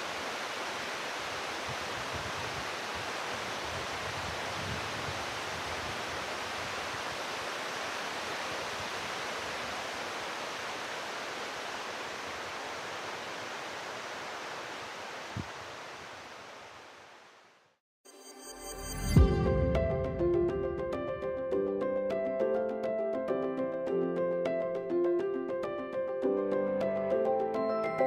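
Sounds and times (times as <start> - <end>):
rushing water: 0.0 - 17.7.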